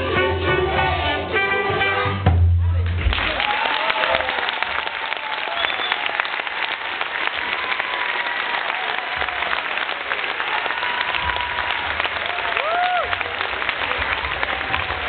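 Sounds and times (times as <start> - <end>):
audience applauding: 3.0 - 15.0.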